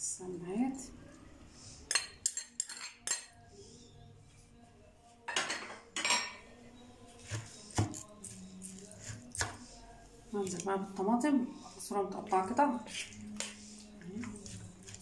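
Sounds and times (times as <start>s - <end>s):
spoon clinking against glass bowl: 1.9s - 3.4s.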